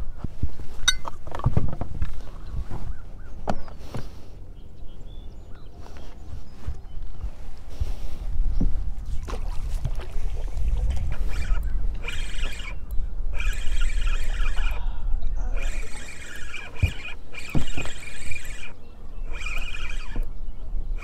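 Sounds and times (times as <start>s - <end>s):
fishing reel whirring squeak: 10.6s - 20.4s.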